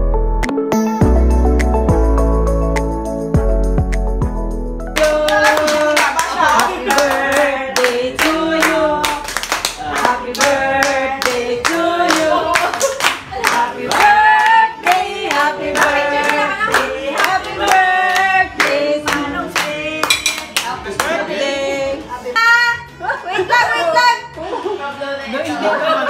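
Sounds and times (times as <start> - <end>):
hand clapping in a steady beat: 4.9 - 21.2
group of people singing: 5.0 - 22.5.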